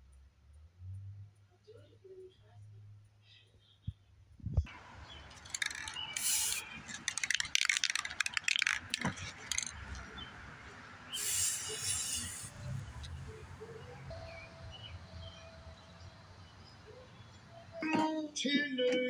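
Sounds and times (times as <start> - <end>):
spray paint hissing: 4.7 - 10.3, 11.1 - 13.8.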